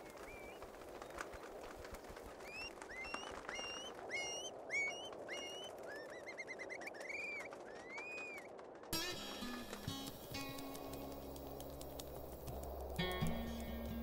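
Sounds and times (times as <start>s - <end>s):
steady rushing background: 0.0s - 14.0s
birds whistling calls: 2.4s - 8.5s.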